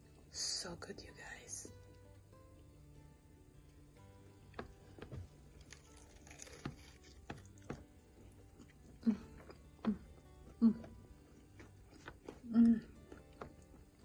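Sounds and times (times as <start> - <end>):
quiet background music: 0.0 - 14.0
soft clicks and taps of eating: 4.5 - 14.0.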